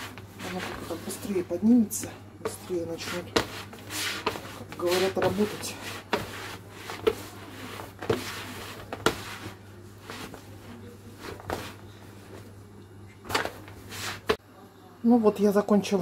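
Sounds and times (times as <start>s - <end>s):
dough kneaded in plastic bowl: 0.0s - 12.6s, 13.2s - 14.4s.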